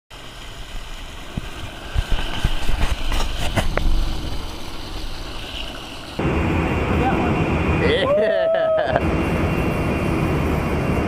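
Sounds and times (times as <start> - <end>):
water splashing: 0.1 - 6.2
low rumbling noise: 0.1 - 11.0.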